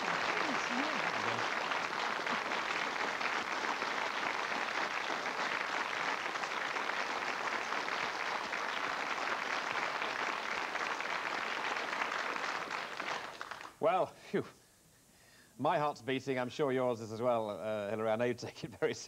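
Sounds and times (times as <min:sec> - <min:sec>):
audience applauding: 0:00.0 - 0:13.8.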